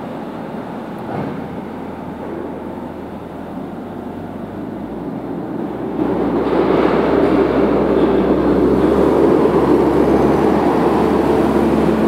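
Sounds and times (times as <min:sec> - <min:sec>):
loader engine rumbling: 0:00.0 - 0:12.0.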